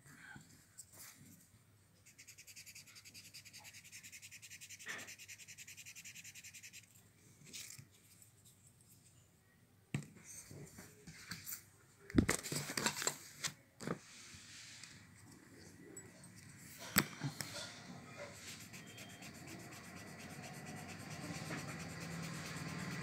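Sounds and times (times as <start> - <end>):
scratchy rubbing on paper: 2.0 - 6.9, 18.2 - 23.0.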